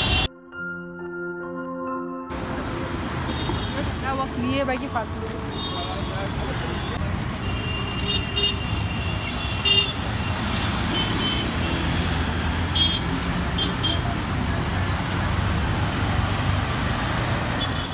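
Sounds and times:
car horn honks: 0.0s - 0.3s, 5.5s - 10.1s
traffic rumble: 2.3s - 17.9s.

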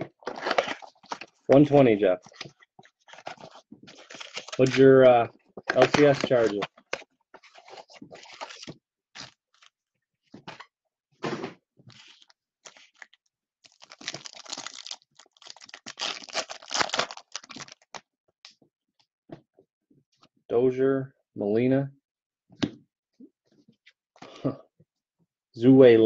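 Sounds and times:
foil wrapper tearing and crinkling: 0.2s - 1.4s, 3.1s - 4.8s, 5.7s - 7.0s, 7.6s - 9.7s, 12.0s - 18.0s.

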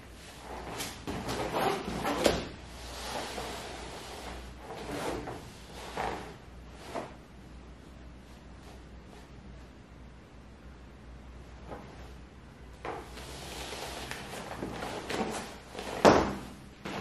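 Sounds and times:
clothing rustling: 0.0s - 7.3s, 11.5s - 12.2s, 12.8s - 17.0s
low steady hum: 0.0s - 17.0s.

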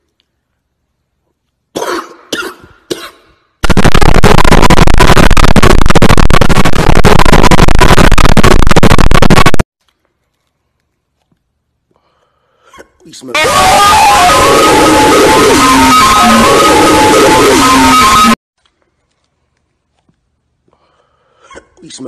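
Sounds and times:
man coughing: 1.8s - 3.3s
harsh distorted noise: 3.6s - 9.7s, 13.3s - 18.4s.

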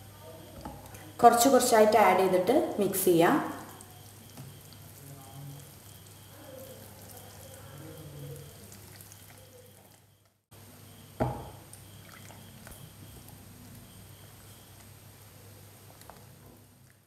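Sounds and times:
sharp knock with short ring: 11.2s - 11.6s.

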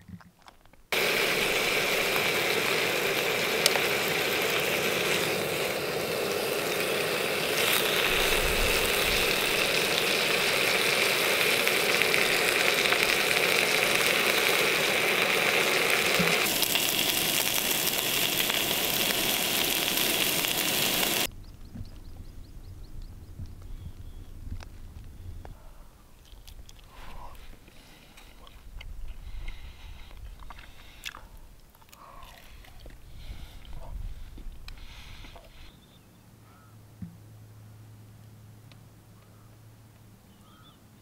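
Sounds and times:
stove burner running: 0.9s - 21.3s
bacon sizzling in a frying pan: 1.0s - 21.3s.

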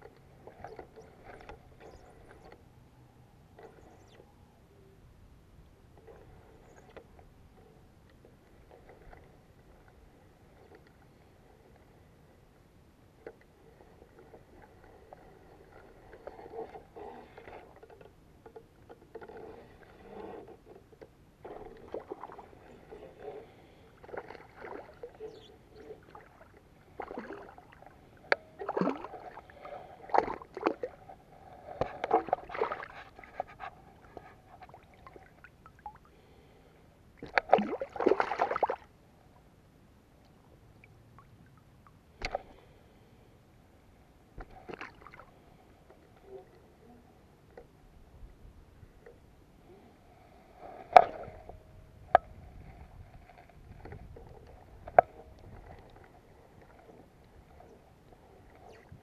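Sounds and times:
water splashing: 32.1s - 33.1s, 37.2s - 38.9s.

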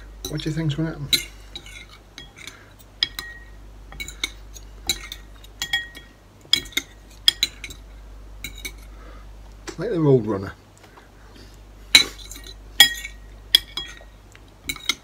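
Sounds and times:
cutlery clinking against bowl: 0.2s - 7.8s, 8.4s - 8.9s, 12.0s - 15.0s.

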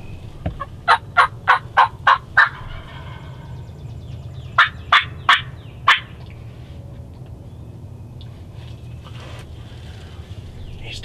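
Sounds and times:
wild turkey calling: 0.0s - 6.5s.

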